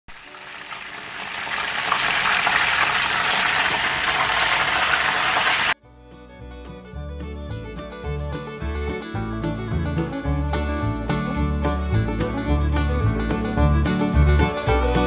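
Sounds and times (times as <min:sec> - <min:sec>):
food deep-frying in hot oil: 0:00.1 - 0:05.8
plucked-string instrumental music: 0:05.8 - 0:15.0.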